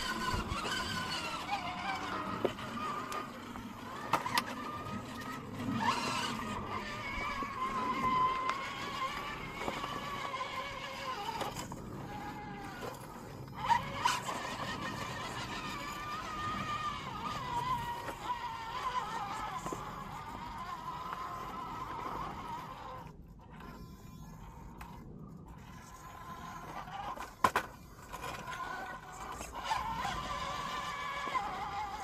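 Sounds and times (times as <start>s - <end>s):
electric motor whining: 0.0s - 32.0s.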